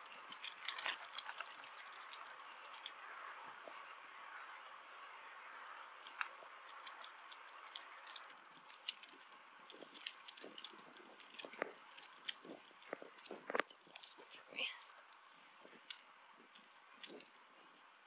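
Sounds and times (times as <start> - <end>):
bicycle riding hiss: 0.0 - 9.6.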